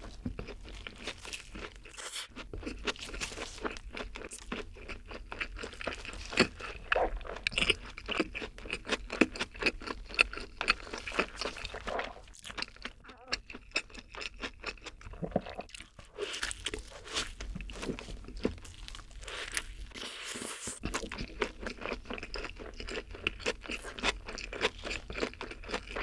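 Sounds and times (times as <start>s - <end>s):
clicky chewing: 0.0s - 16.0s.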